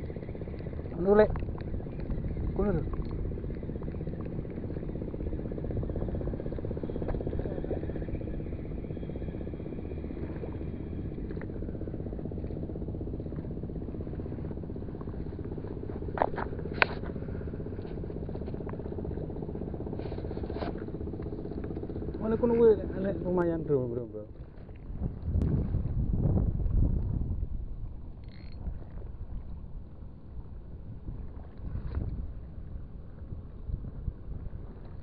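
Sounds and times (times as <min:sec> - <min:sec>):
steady low rumble: 0:00.0 - 0:35.0
spinning reel being cranked: 0:28.2 - 0:28.7.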